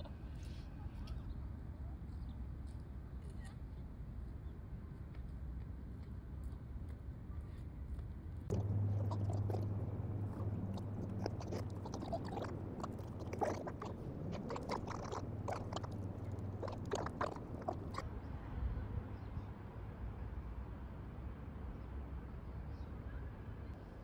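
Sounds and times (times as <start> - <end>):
steady low hum: 8.5 - 18.0.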